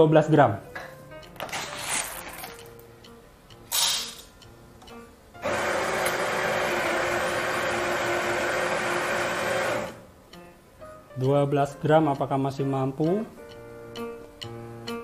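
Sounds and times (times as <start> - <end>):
coffee grinder grinding: 5.4 - 10.0.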